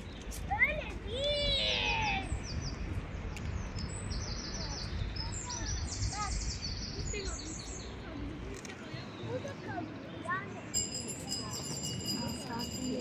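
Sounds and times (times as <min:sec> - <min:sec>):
small birds chirping: 0:02.2 - 0:10.9.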